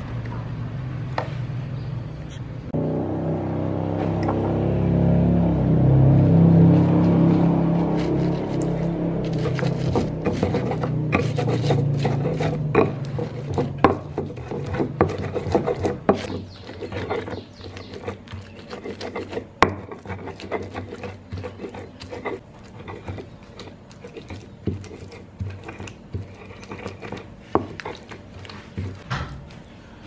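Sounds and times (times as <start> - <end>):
wet grinding scrapes: 6.5 - 29.1
stone knocking on stone: 9.4 - 23.2.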